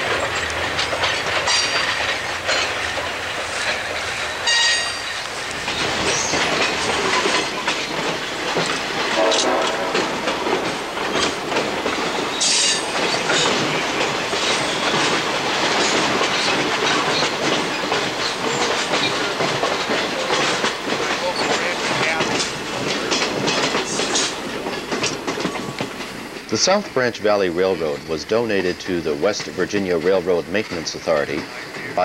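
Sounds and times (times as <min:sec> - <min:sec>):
rail clicks and clacks: 0:00.0 - 0:32.0
train wheels rumbling on rails: 0:00.0 - 0:32.0
high wheel squeals: 0:12.1 - 0:13.6.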